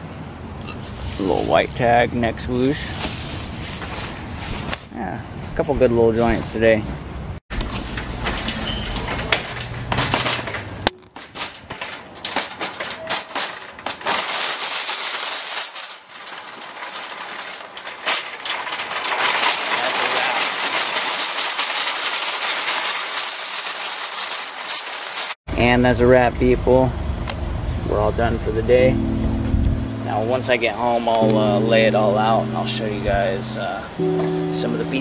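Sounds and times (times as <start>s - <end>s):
shopping cart rattling on pavement: 7.6s - 25.4s.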